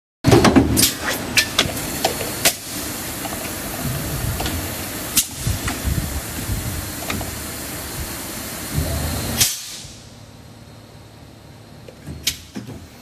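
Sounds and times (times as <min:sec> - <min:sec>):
machine air hissing: 0:00.8 - 0:10.3.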